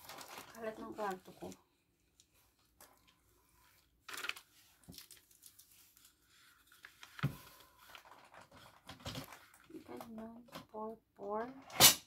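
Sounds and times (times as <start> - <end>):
furniture parts rustling and clattering: 7.0 - 9.7.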